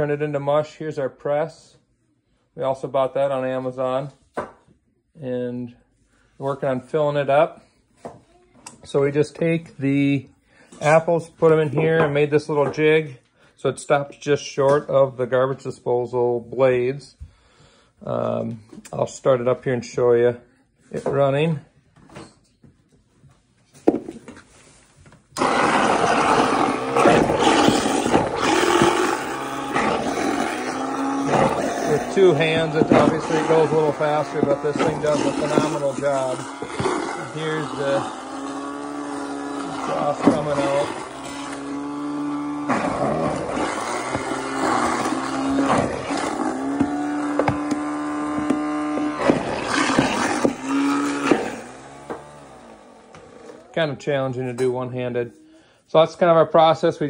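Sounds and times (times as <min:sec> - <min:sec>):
garbage disposal grinding: 0:25.3 - 0:54.0
apple pieces knocking blades: 0:25.4 - 0:38.1, 0:42.6 - 0:52.2.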